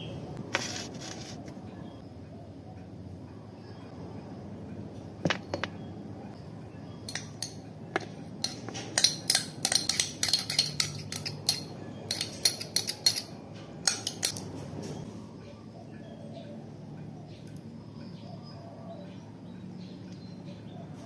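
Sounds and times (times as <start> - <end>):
spoon scraping a cup: 0.6 - 1.6, 8.4 - 14.4
sharp clinks of spoon: 7.1 - 7.6, 8.4 - 14.4.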